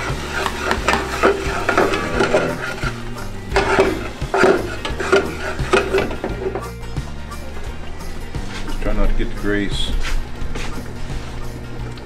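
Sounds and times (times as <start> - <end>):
onions sizzling in oil: 0.0 - 6.4
spoon scraping a steel pot: 0.0 - 8.9.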